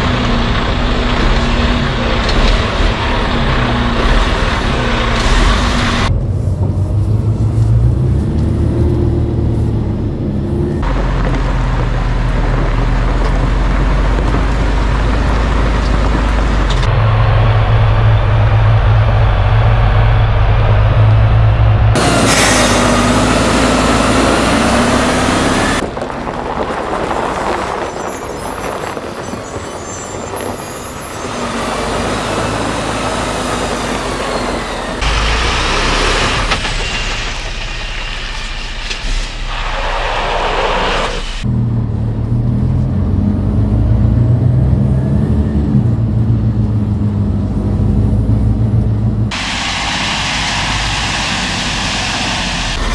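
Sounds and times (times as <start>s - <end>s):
tyres on gravel: 0.0s - 6.1s, 22.0s - 41.5s
truck diesel engine under load: 0.0s - 52.9s.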